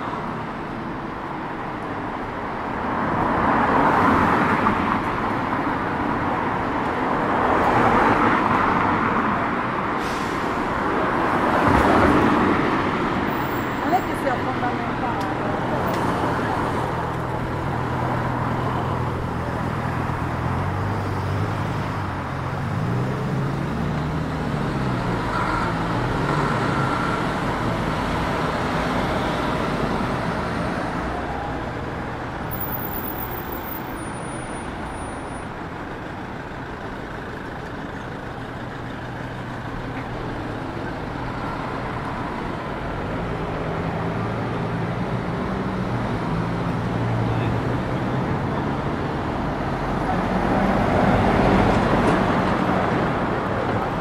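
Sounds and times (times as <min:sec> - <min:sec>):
cars and buses passing: 0:00.0 - 0:54.0.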